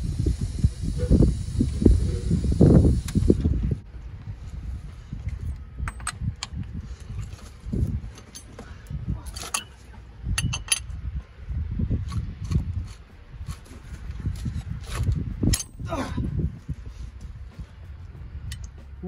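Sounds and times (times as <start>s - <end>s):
metallic clinks of hand tools: 9.3s - 11.0s, 15.5s - 15.8s
low rumble: 10.0s - 19.0s.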